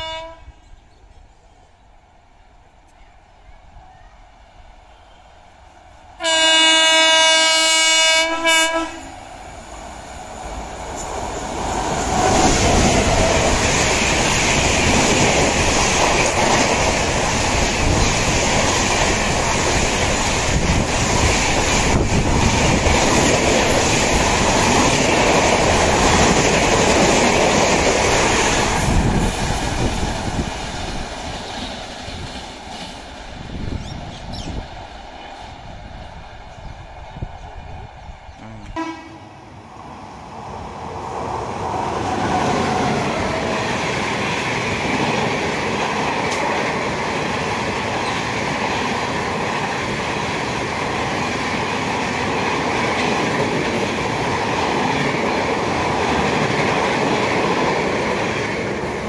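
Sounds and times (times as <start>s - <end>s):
train horn blast: 0.0s - 0.6s, 6.2s - 9.1s, 38.4s - 39.5s
train wheels clattering over rails: 10.5s - 34.5s, 41.9s - 59.0s.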